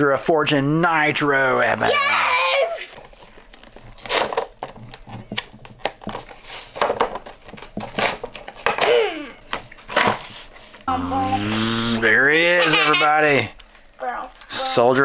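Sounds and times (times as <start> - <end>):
plastic packaging tearing: 2.8 - 5.0.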